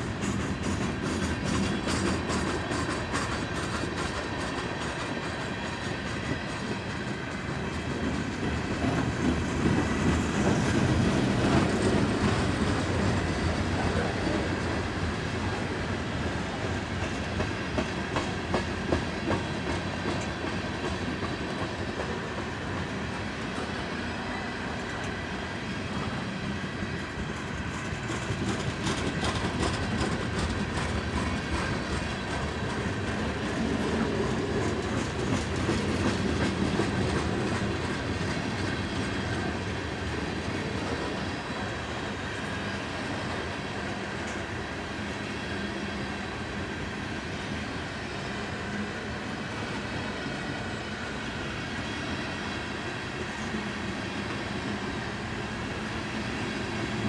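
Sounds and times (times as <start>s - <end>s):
wheels clicking over rail joints: 0.0s - 15.1s, 27.2s - 41.2s
railroad cars rolling on track: 0.0s - 57.0s.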